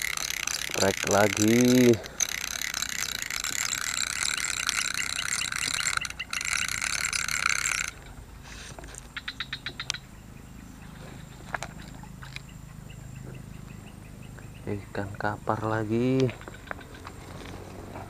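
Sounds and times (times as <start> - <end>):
fishing reel whirring and clicking: 0.0 - 8.2.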